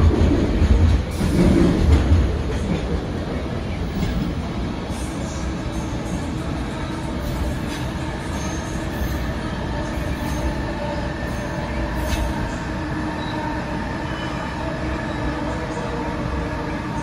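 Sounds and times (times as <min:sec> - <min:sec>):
train wheels rumbling on guideway: 0:00.0 - 0:13.7.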